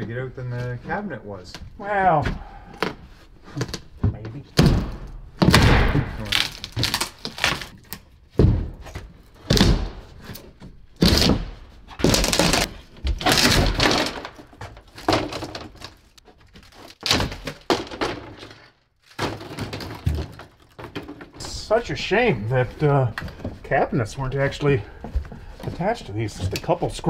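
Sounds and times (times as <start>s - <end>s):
wood cracking and breaking: 4.6s - 23.8s.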